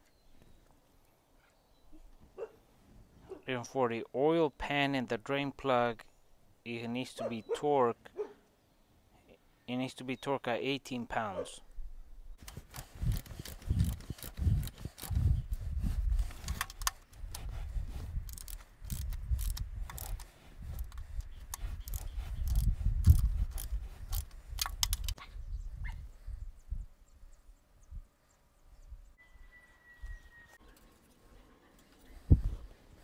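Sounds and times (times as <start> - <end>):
ratchet wrench clicking: 12.5 - 15.2, 18.2 - 25.2.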